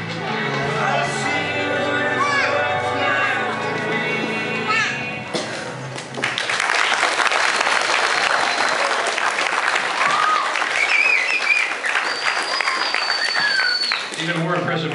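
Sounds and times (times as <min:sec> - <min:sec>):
audience applauding: 0:06.0 - 0:14.9
high voices cheering: 0:09.9 - 0:14.1.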